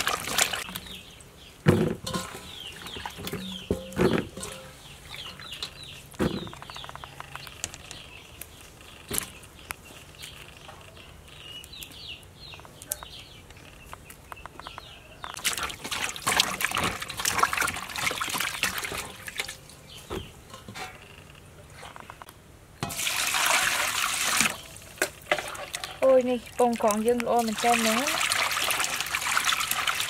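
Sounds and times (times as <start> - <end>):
rustling and splashing: 0.0 - 11.6, 15.3 - 30.0
small birds chirping: 0.2 - 15.8, 18.0 - 22.4, 25.5 - 28.2.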